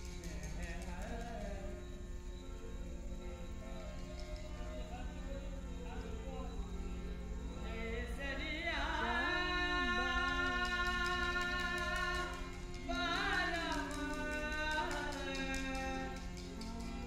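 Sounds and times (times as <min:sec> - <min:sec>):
light percussion beat: 0:00.0 - 0:01.9, 0:03.8 - 0:05.0, 0:10.0 - 0:17.0
instrumental accompaniment: 0:00.0 - 0:17.0
person singing long held notes: 0:00.0 - 0:17.0.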